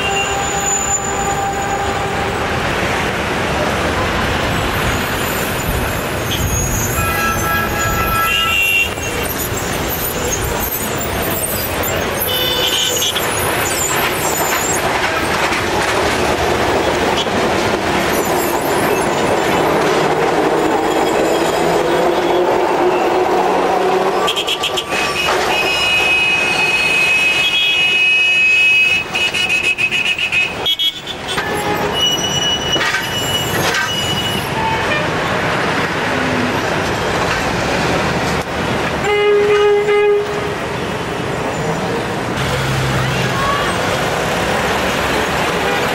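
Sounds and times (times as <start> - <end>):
tram wheel squeal: 0.0 - 2.6, 4.4 - 30.3, 31.1 - 35.9
city traffic: 0.0 - 45.9
electric trams running: 0.0 - 45.9.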